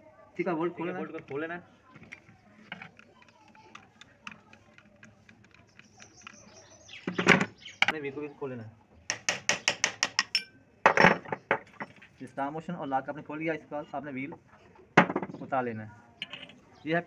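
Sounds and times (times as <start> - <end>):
metal clicks and taps: 2.0 - 6.7, 9.1 - 10.5, 16.2 - 16.6.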